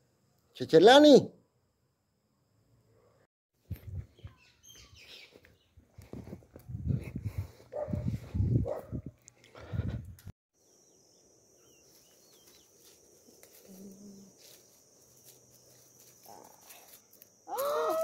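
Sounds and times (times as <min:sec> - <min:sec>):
small bird chirps: 0:04.1 - 0:05.8
high-pitched insect drone: 0:10.6 - 0:18.0.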